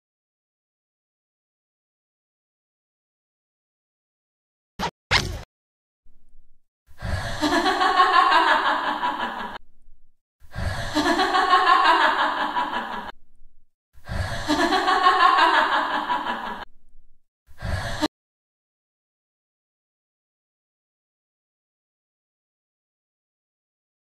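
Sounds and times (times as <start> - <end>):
breathy human vocal sound: 6.9 - 7.6, 10.4 - 11.2, 14.0 - 14.7, 17.5 - 18.1.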